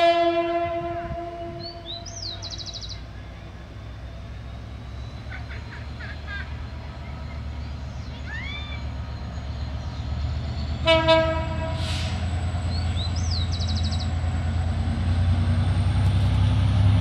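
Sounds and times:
locomotive horn blast: 0.0s - 2.2s, 10.8s - 12.3s
diesel locomotive engine rumble: 0.0s - 17.0s.

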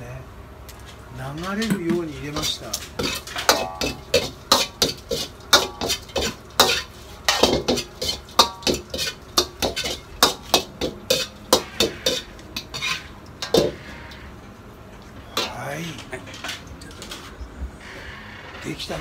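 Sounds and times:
metal spatula striking a wok: 1.7s - 13.8s.

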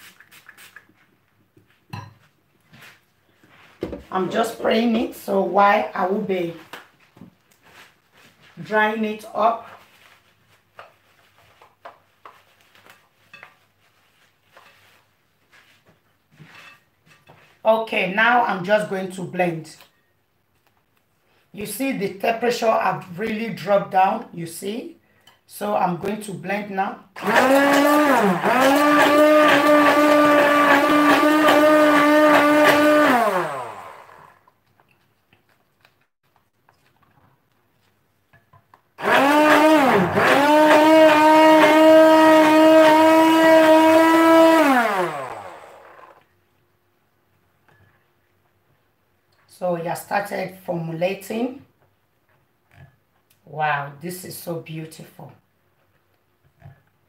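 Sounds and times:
hand blender motor whine: 27.2s - 34.5s, 39.0s - 46.2s.

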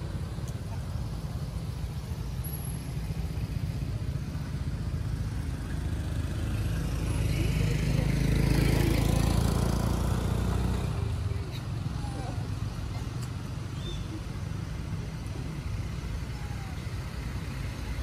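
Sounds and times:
vehicle engine passing by: 2.6s - 12.9s.

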